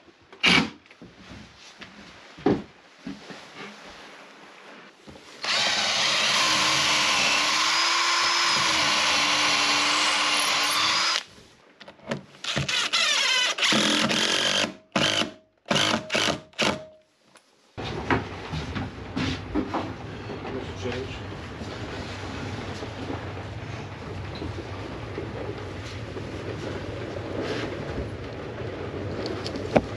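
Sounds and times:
cordless drill boring into wood: 5.4s - 11.3s, 12.4s - 16.8s.

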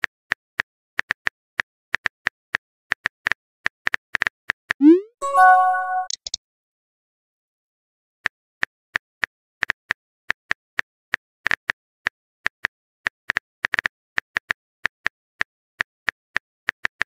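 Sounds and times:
keyboard typing clicks: 4.8s - 6.4s.

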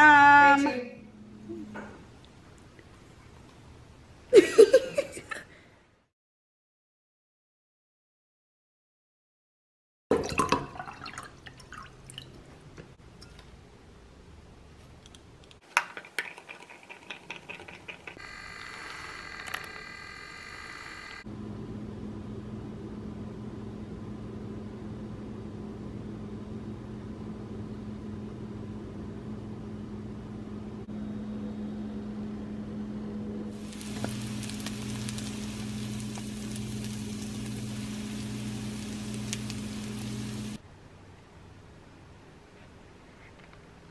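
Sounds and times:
low mechanical hum: 0.0s - 5.1s, 18.2s - 43.8s
milk frother motor whining: 18.2s - 21.3s, 33.6s - 40.6s.

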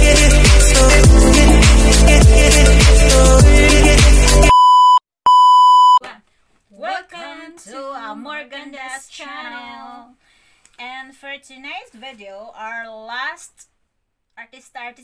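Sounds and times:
pop music: 0.0s - 4.5s
women's voices: 6.0s - 10.2s, 10.8s - 13.7s.

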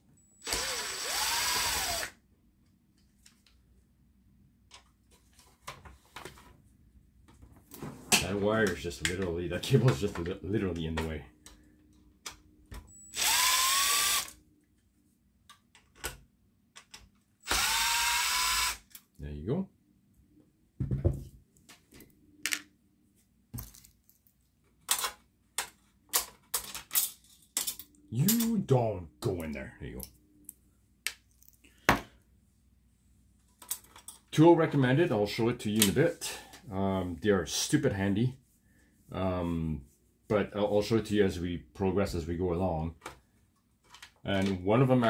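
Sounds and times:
power screwdriver motor: 0.4s - 2.2s, 13.1s - 14.4s, 17.4s - 18.8s.

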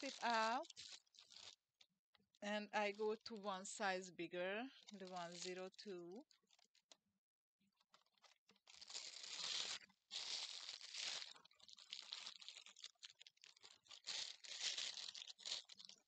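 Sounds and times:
plastic bag crinkling: 0.0s - 1.6s, 4.6s - 7.0s, 7.8s - 16.0s.

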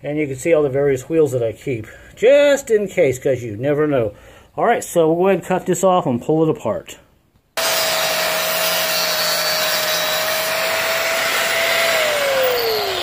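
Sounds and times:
angle grinder cutting metal: 7.6s - 13.0s
grinder winding down whine: 7.6s - 13.0s.

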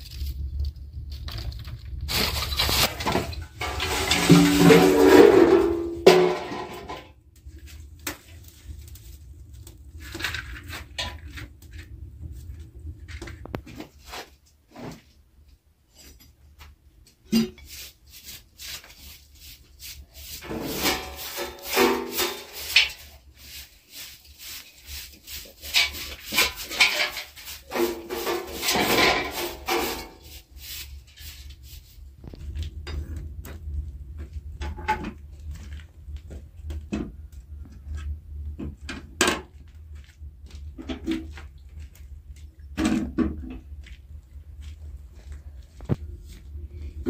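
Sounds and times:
broom brushing and scraping: 2.1s - 15.1s, 17.3s - 32.7s
steady low hum: 28.3s - 47.0s.

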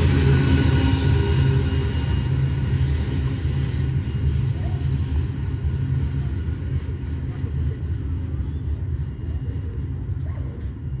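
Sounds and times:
train rumbling on track: 0.0s - 11.0s.

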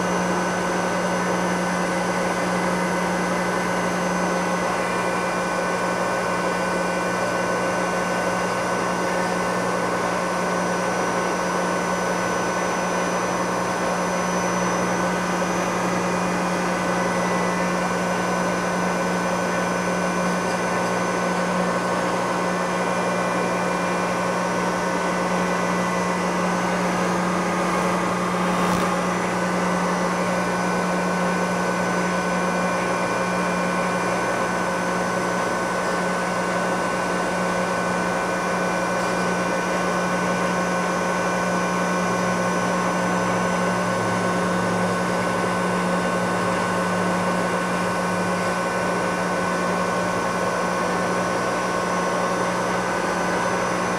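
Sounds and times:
milling machine cutting metal: 12.6s - 32.2s.

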